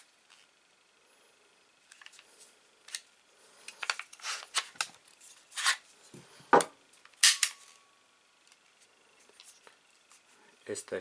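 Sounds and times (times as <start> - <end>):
pistol handling scrapes and rubs: 3.8 - 5.9.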